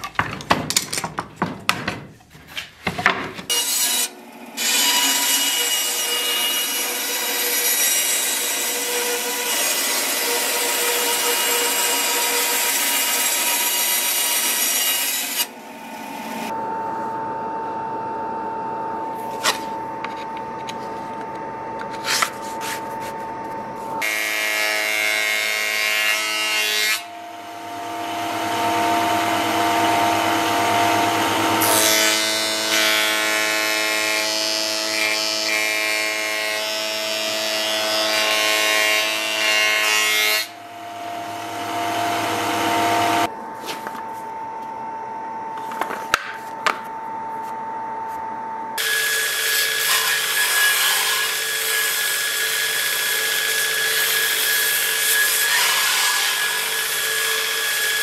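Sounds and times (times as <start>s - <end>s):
bandsaw cutting wood: 3.5s - 15.6s, 27.8s - 36.2s, 36.8s - 43.3s, 48.8s - 58.0s
table saw cutting wood: 3.5s - 16.6s, 24.0s - 43.3s, 48.8s - 58.0s.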